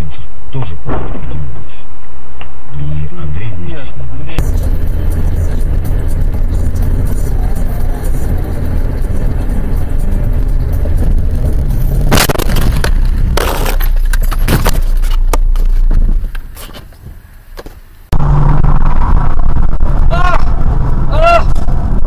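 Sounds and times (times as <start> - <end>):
car cabin rumble: 4.4 - 22.0
crunching impacts: 4.4 - 22.0
car crash: 10.8 - 17.0.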